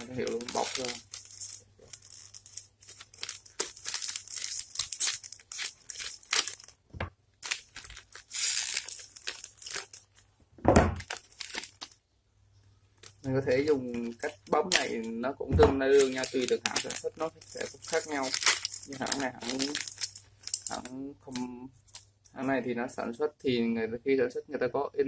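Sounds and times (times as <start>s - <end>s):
plastic bag crinkling: 0.0s - 10.3s, 10.9s - 12.0s, 13.0s - 22.4s
dull thump: 10.6s - 11.0s, 15.5s - 15.8s.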